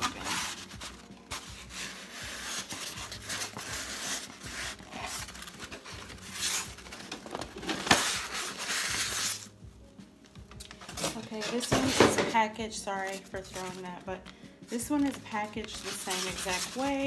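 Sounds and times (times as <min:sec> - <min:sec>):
styrofoam scraping against cardboard: 0:00.0 - 0:09.5, 0:11.0 - 0:12.1, 0:14.7 - 0:17.0.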